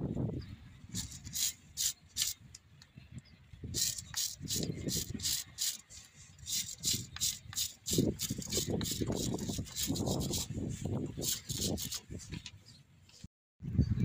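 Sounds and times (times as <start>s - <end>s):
hand tool scraping metal: 0.9s - 2.4s, 3.8s - 10.6s, 11.2s - 12.2s.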